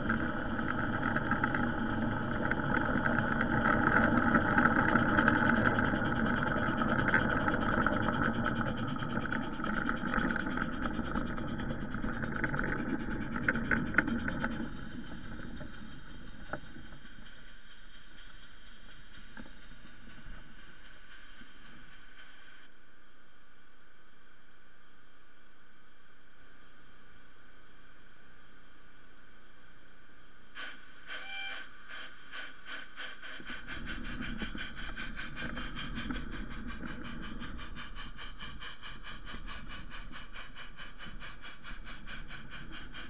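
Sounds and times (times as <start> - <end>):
wheels clicking over rail joints: 0.0 - 22.3, 32.4 - 43.0
model train whirring hum: 0.0 - 22.9, 30.5 - 43.0
faint hiss: 0.0 - 43.0.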